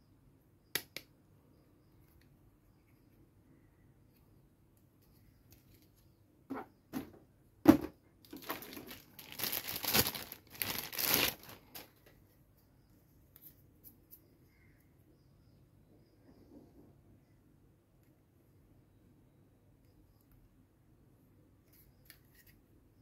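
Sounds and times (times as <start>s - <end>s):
plastic bag crinkling: 8.2s - 12.0s.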